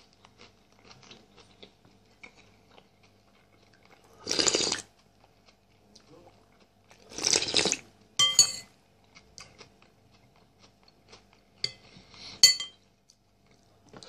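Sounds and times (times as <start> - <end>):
slurping soup: 4.2 - 4.8, 7.1 - 7.8
metal spoon clinking on bowl: 8.2 - 8.7, 12.4 - 12.8.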